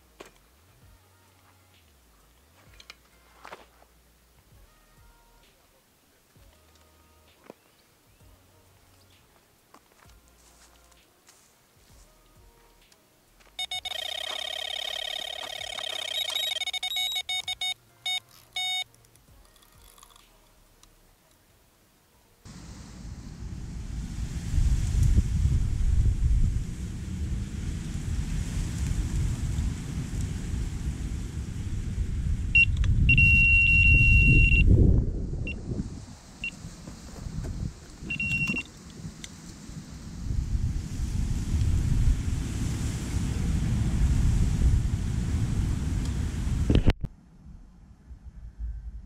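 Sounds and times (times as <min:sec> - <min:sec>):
bite alarm high beeps: 0:13.6 - 0:18.9, 0:32.6 - 0:34.7, 0:38.1 - 0:38.7
wind rumble on microphone: 0:22.5 - 0:49.0.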